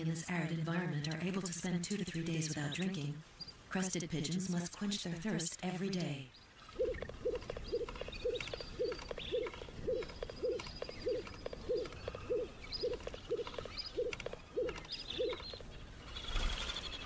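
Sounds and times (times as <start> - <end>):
small birds chirping: 0.0 - 17.0
pigeons calling low notes: 6.6 - 17.0.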